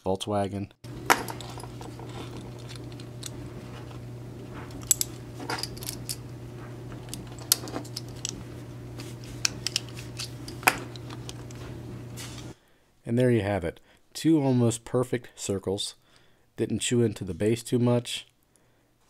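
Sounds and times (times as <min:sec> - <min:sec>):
steady low hum: 0:00.8 - 0:12.6
metallic clicks and scrapes: 0:04.6 - 0:12.5.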